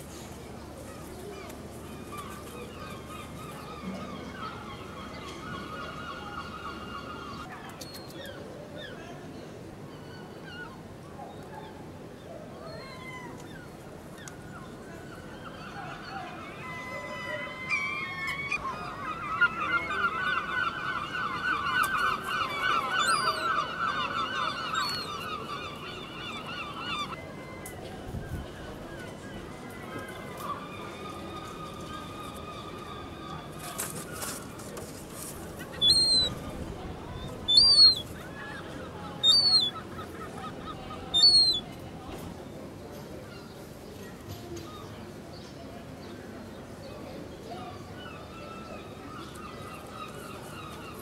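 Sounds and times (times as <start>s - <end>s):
low background noise: 0.0s - 51.0s
gull calling: 15.5s - 27.2s, 35.6s - 36.4s, 37.1s - 41.6s.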